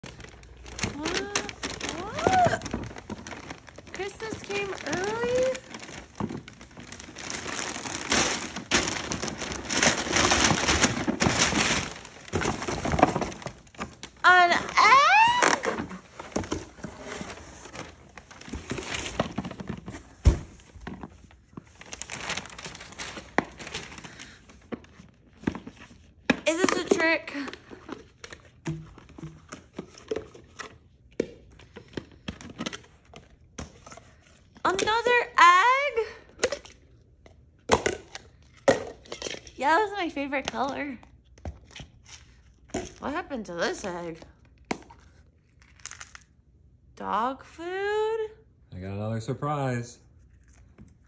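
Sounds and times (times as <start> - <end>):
wrapping paper ripping and crumpling: 0.0 - 19.6, 21.6 - 24.6.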